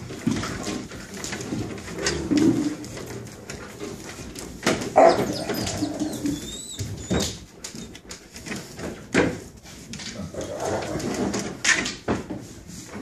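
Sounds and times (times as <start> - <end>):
dogs growling and whining: 1.6 - 3.8, 4.8 - 8.0, 10.1 - 11.5
dog high squeal: 5.0 - 7.4.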